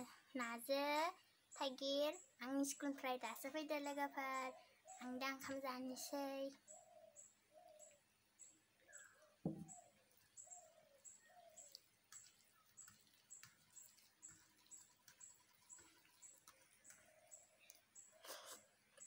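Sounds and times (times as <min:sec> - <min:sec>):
lower bird calls: 0:08.8 - 0:19.0.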